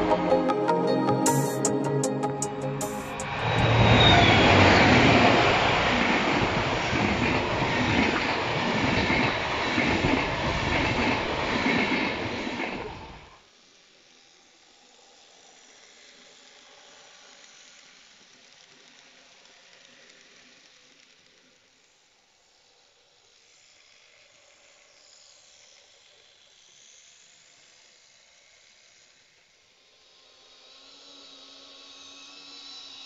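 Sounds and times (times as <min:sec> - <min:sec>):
train wheels rumbling on rails: 0:03.2 - 0:13.3
model train whirring: 0:03.2 - 0:33.0.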